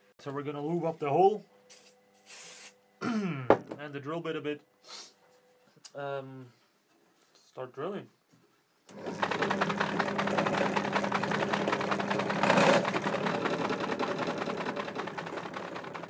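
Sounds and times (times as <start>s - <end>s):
drill press cutting metal: 8.9s - 16.0s.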